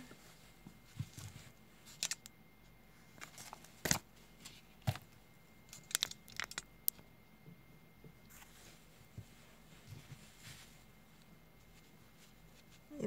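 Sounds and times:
rustling papers: 0.2s - 2.3s, 3.0s - 6.6s
handling noises on a tabletop: 0.4s - 2.4s, 3.0s - 7.0s, 8.2s - 13.0s.

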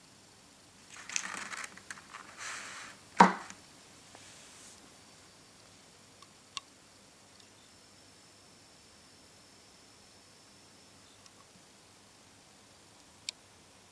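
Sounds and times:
plastic tray crinkling and rattling: 0.9s - 3.6s
faint ticks: 5.6s - 6.7s, 11.2s - 11.5s.

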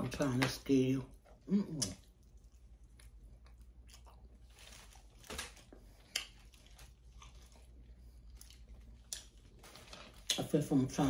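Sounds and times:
chewing and wet mouth smacks: 1.1s - 4.8s, 5.4s - 9.6s.

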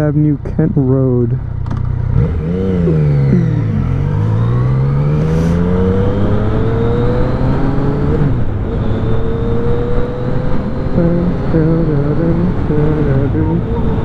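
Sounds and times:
motorcycle engine accelerating: 0.0s - 14.0s.

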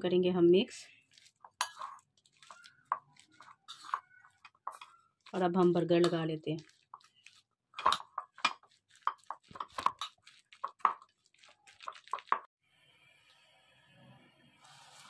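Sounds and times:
utensil tapping wet mixture: 1.1s - 12.5s.

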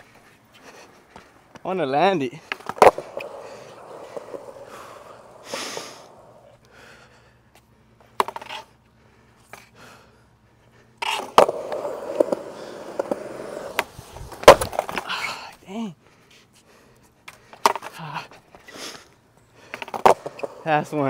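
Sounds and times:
skateboard wheels rolling on concrete: 0.0s - 21.0s
skateboard clacking: 2.0s - 6.5s, 8.2s - 8.7s, 11.0s - 15.2s, 17.3s - 18.0s, 19.7s - 21.0s
skateboard clattering: 2.5s - 6.5s, 8.2s - 8.7s, 11.0s - 15.2s, 17.3s - 18.0s, 19.7s - 21.0s.

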